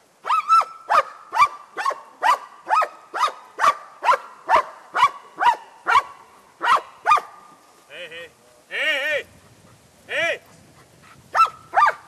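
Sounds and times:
dog barking: 0.2s - 7.5s, 11.3s - 12.0s.

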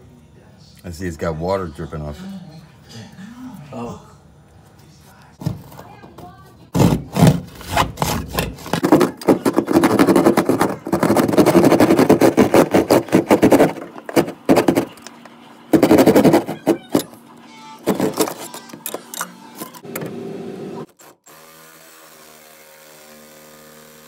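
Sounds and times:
jab saw sawing through drywall: 6.8s - 15.0s, 15.7s - 16.9s, 17.8s - 18.4s.

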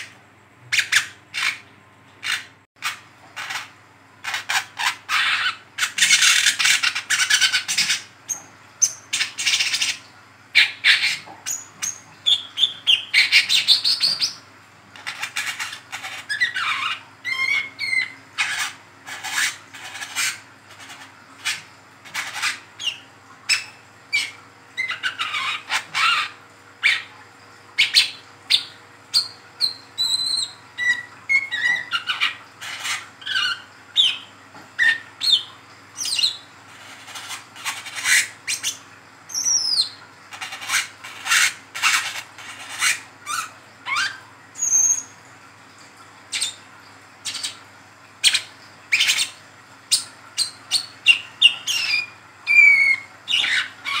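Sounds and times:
sunbird high chirps and twitters: 16.3s - 19.6s, 22.3s - 27.1s, 27.8s - 36.4s, 37.2s - 45.1s, 48.2s - 54.0s.

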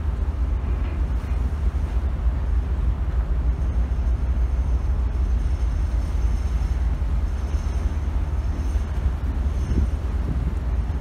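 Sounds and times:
faint high whine: 0.0s - 11.0s
ship engine: 0.0s - 11.0s
wind on microphone: 2.9s - 11.0s.

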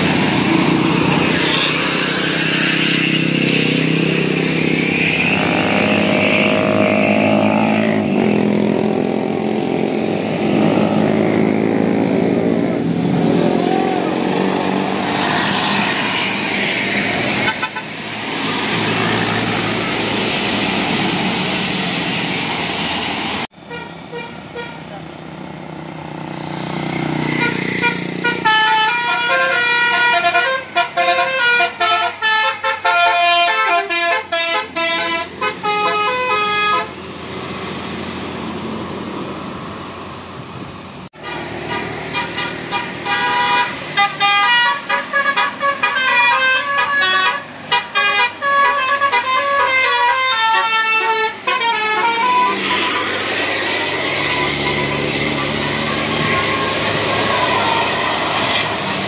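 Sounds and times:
bus engine: 0.0s - 59.0s
road noise: 0.0s - 59.0s
multi-tone musical bus horn: 17.3s - 18.0s, 23.5s - 25.0s, 27.2s - 37.0s, 41.2s - 59.0s.

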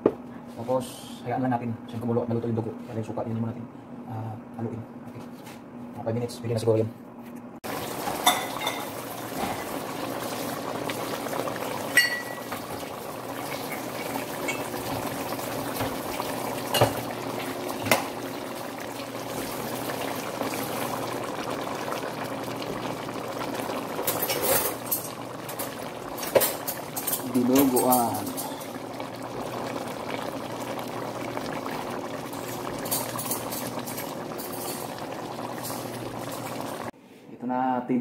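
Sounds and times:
stew bubbling in a pot: 7.6s - 37.0s.

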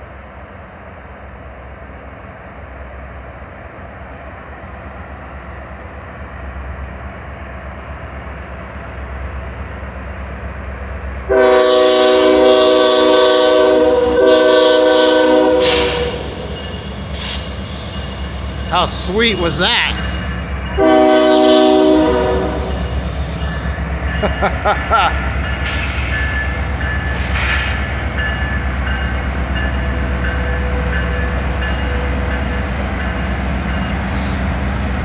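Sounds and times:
diesel locomotive engine rumble: 0.0s - 35.0s
locomotive air horn chord: 11.3s - 16.4s, 20.8s - 22.8s.

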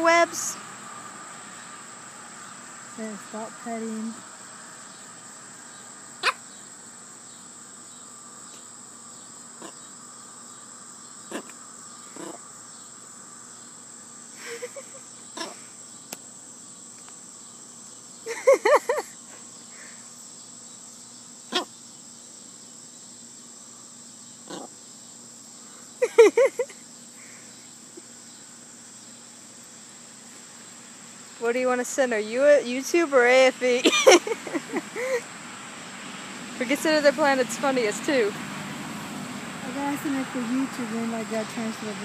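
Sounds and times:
crickets chirring: 0.0s - 42.0s
small dog yapping: 6.2s - 6.4s, 11.3s - 11.6s, 12.2s - 12.4s.

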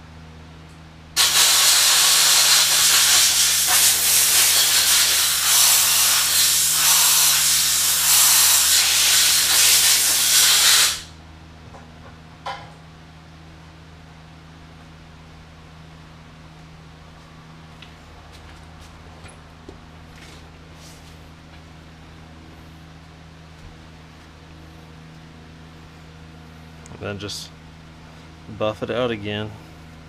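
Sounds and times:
compressed air blow gun hissing: 1.2s - 11.1s.

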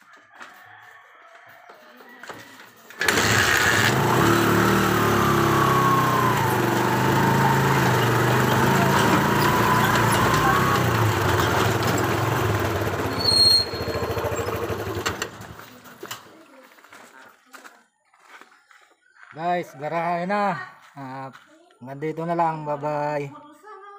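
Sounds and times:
small motorcycle engine: 3.0s - 16.2s
high squeal: 7.2s - 14.8s.

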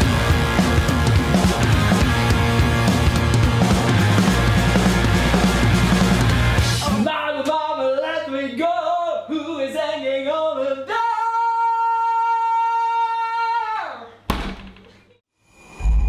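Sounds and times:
man singing unaccompanied: 6.8s - 13.0s.

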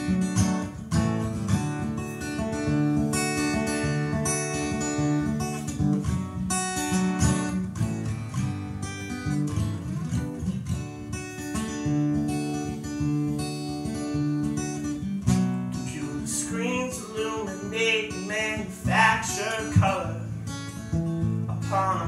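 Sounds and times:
acoustic guitar strumming: 0.0s - 22.0s
person singing: 15.8s - 20.4s, 21.5s - 22.0s.

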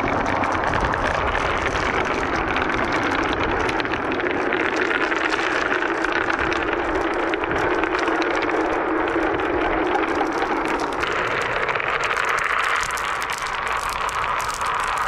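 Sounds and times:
marbles clicking together: 0.0s - 15.0s
marbles rolling on wooden tracks: 0.0s - 15.0s.

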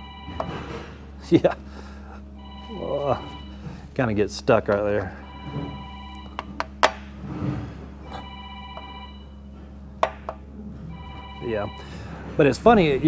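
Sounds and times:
telephone ringing: 0.0s - 0.7s, 2.4s - 3.7s, 5.0s - 6.6s, 8.0s - 9.6s, 10.9s - 12.2s.

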